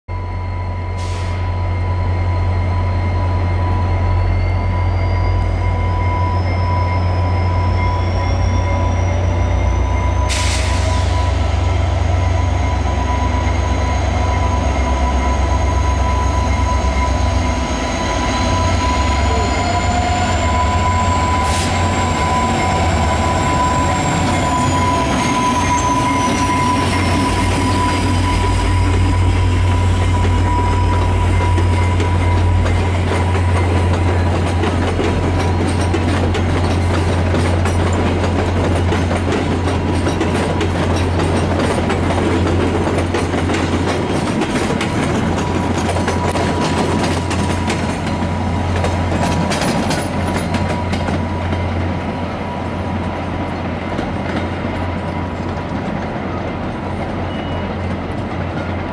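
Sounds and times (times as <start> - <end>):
diesel locomotive rumbling: 0.1 - 58.9
wheels squealing on switches: 3.6 - 42.0.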